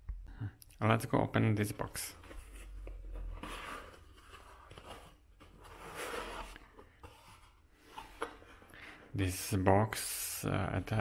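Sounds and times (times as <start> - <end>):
cardboard box scraping and rustling: 2.4 - 7.6.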